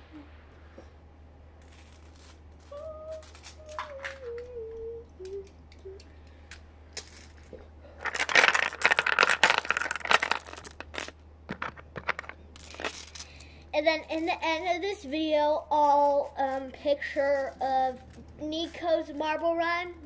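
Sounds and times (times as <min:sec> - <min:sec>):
marbles rattling through plastic run: 0:08.0 - 0:13.2.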